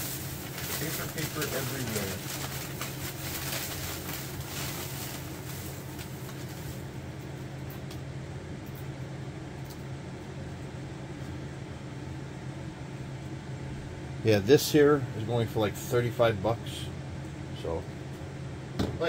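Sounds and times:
newspaper and plastic bag rustling: 0.0 - 7.0
steady low hum: 0.0 - 19.0.

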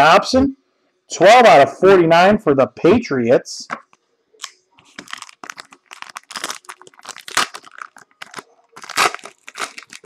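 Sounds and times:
foil wrapper crinkling: 4.4 - 10.0.

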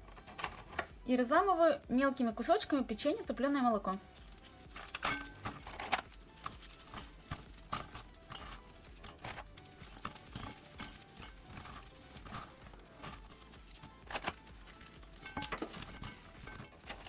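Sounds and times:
biscuits snapping and crumbling: 4.3 - 17.0
pieces dropping onto heap: 4.6 - 17.0.

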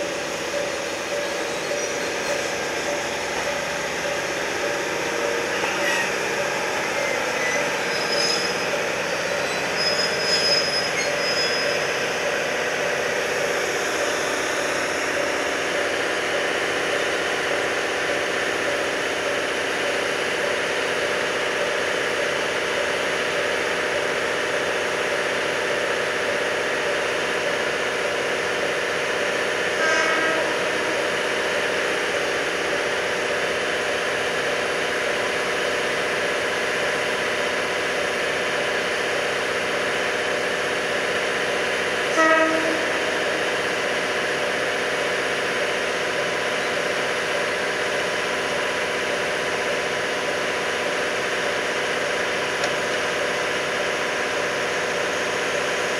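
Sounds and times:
diesel engines idling: 0.0 - 9.8.

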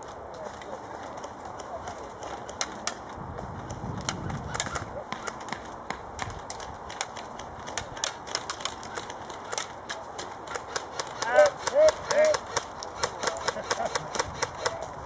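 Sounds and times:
airsoft guns firing: 6.8 - 14.9.

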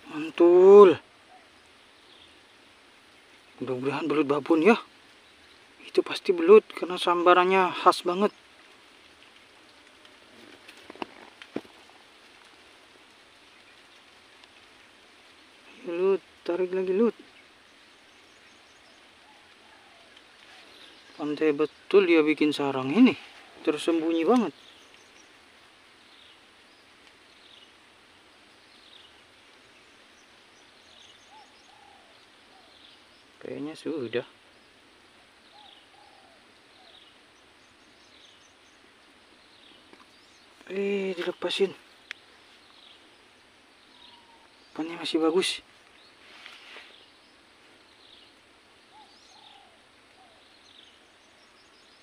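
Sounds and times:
low steady hiss: 0.0 - 52.0
quiet outdoor ambience: 0.0 - 52.0
soft rustle: 8.3 - 16.4, 17.1 - 21.9, 22.8 - 33.4, 35.4 - 44.7, 45.4 - 52.0
high falling bird chirps: 13.4 - 52.0.

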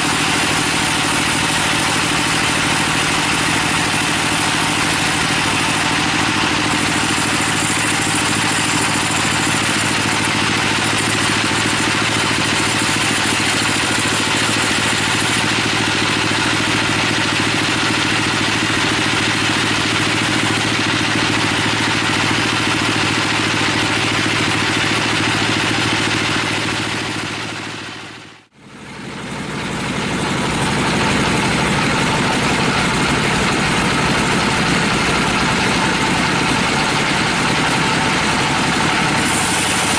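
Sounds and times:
sawmill machine hum: 0.0 - 39.9
saw blade hiss: 38.6 - 39.9.

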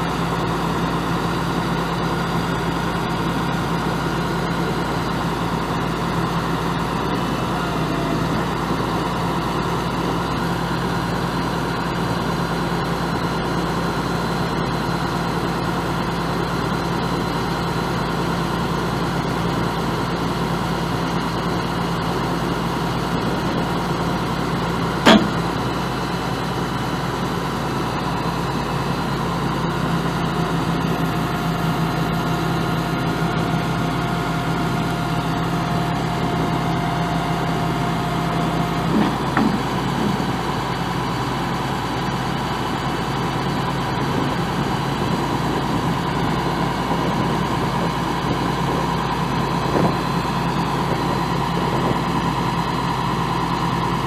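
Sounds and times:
diesel truck engine idling: 0.0 - 54.0
sharp knock: 25.1 - 25.4.

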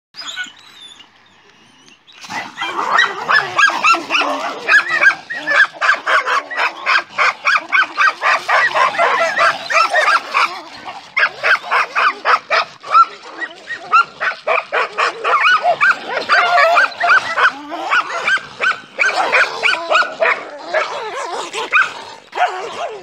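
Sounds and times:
dogs barking and yelping: 0.2 - 23.0.

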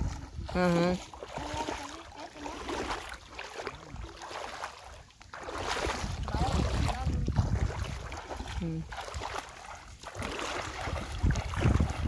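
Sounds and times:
wind rumbling on microphone: 0.0 - 1.8, 5.4 - 12.0
feet wading through river: 0.0 - 12.0
water splashing: 0.0 - 12.0.

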